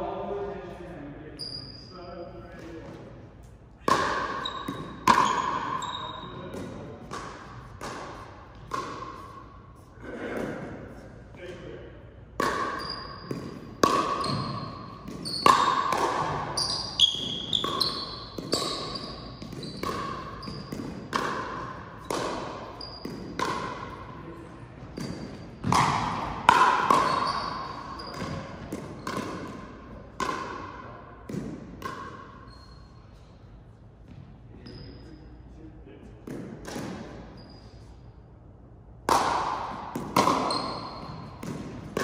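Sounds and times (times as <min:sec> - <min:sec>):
ball and paddle hits echoing: 0:02.5 - 0:32.7, 0:36.0 - 0:37.6, 0:38.9 - 0:42.0
high squeaks: 0:04.3 - 0:06.5, 0:16.6 - 0:20.7.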